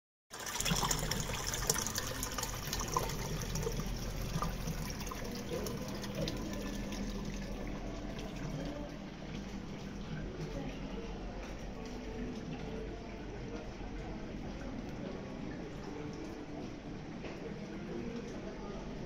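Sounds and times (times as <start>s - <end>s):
water running and splashing: 0.3s - 10.7s
water drips: 0.3s - 10.8s
low steady hum: 0.4s - 19.0s.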